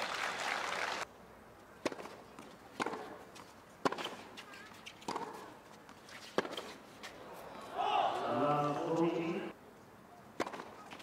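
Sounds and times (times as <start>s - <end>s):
spectators applauding: 0.0s - 1.0s
tennis ball hits: 1.8s - 3.2s, 3.8s - 4.2s, 5.0s - 5.5s, 6.2s - 6.8s, 10.4s - 11.0s.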